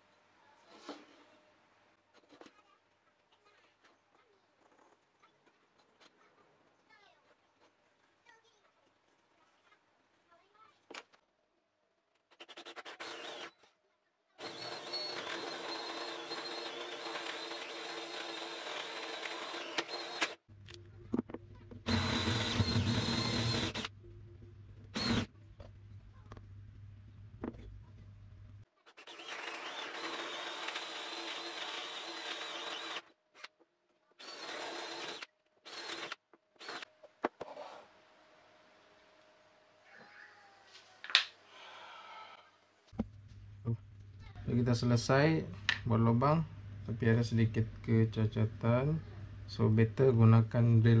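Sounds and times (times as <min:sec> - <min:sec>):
electric drill boring plywood: 0:12.5 - 0:13.6, 0:14.4 - 0:20.4, 0:21.8 - 0:23.9, 0:24.9 - 0:25.3, 0:28.9 - 0:33.1, 0:34.2 - 0:36.9.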